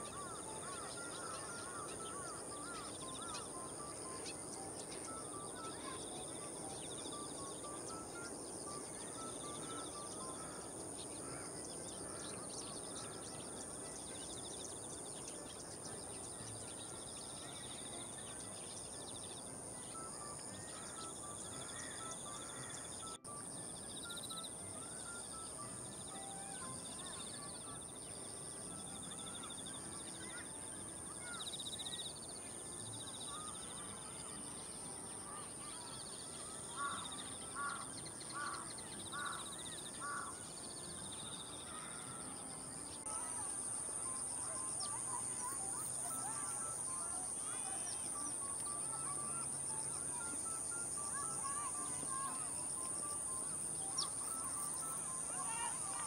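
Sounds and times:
high-pitched insect chorus: 0.0 - 56.0
crow cawing: 36.7 - 40.4.

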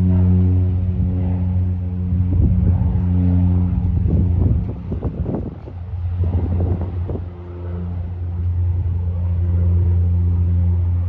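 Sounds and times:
low buffeting: 0.0 - 11.0
turboprop aircraft droning: 0.0 - 11.0.

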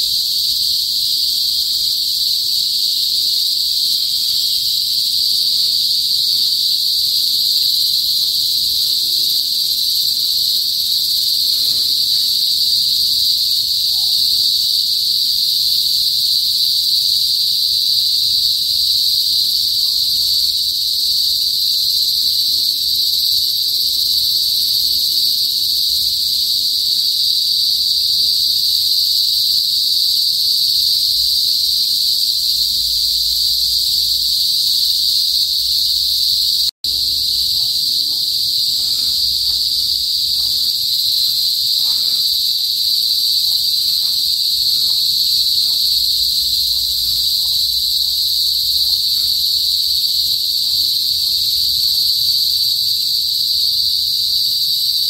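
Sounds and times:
cicadas buzzing: 0.0 - 55.0.

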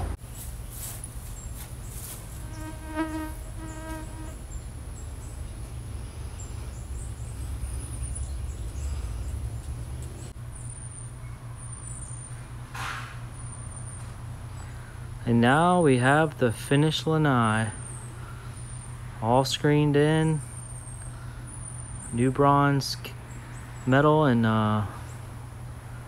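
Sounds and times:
fly buzzing: 2.1 - 4.5.

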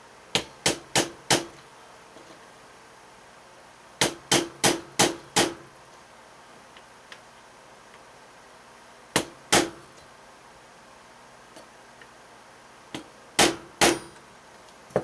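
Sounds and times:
hammer tapping a punch: 0.4 - 1.5, 4.0 - 5.6, 13.0 - 14.2.

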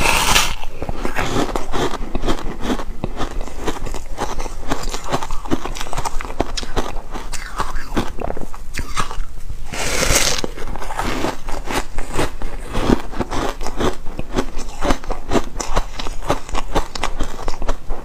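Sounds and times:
crisp bite into ice: 0.0 - 8.1, 8.8 - 17.6
ice crunching between teeth: 0.0 - 18.0.

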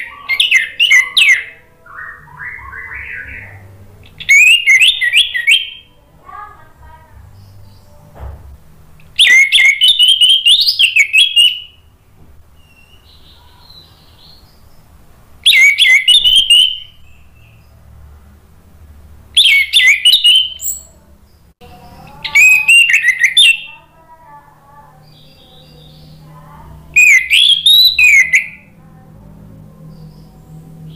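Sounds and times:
bird warbling song: 0.0 - 6.0, 9.0 - 11.9, 12.6 - 17.8, 19.4 - 24.0, 24.8 - 29.0, 29.6 - 30.9.

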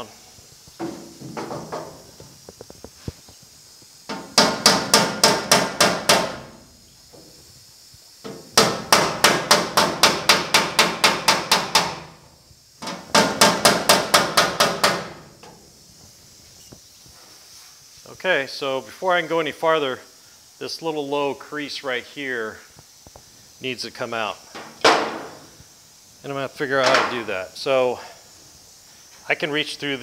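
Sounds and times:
hammer tapping sheet metal: 4.1 - 6.4, 8.6 - 12.1, 13.1 - 15.2.

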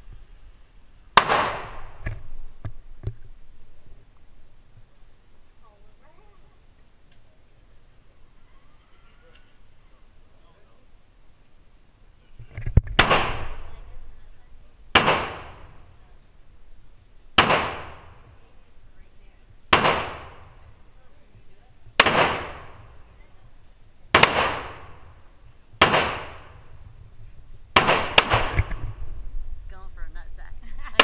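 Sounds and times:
echoing gunshots indoors: 14.9 - 15.7, 17.4 - 18.0, 19.7 - 20.4, 22.0 - 22.8, 24.1 - 25.0, 25.8 - 26.6, 27.8 - 28.7.

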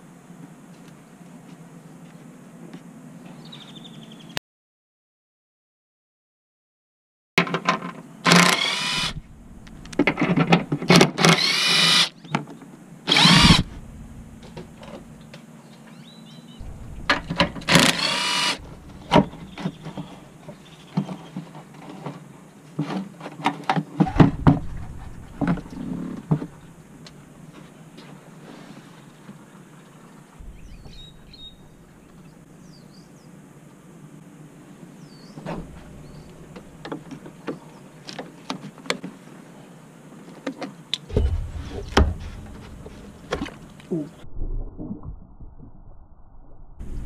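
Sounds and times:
power tool whirring: 8.3 - 9.2, 11.2 - 12.1, 13.1 - 13.8, 17.4 - 19.3.

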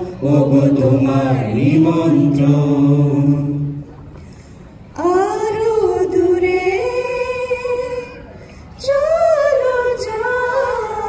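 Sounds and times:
woman singing into a microphone: 4.9 - 11.0.

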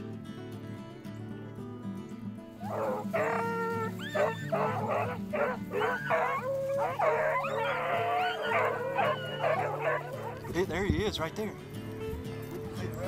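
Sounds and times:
dogs baying and howling: 2.6 - 10.6.

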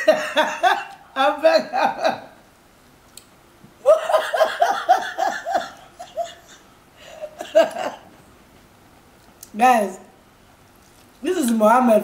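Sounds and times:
woman laughing: 0.0 - 2.4, 3.8 - 8.1.

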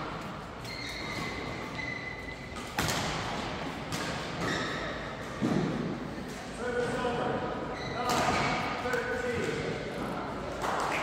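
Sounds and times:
shoes squeaking on court floor: 0.4 - 2.8, 4.2 - 5.4, 7.6 - 8.6
racket hitting shuttlecock: 2.6 - 4.6.

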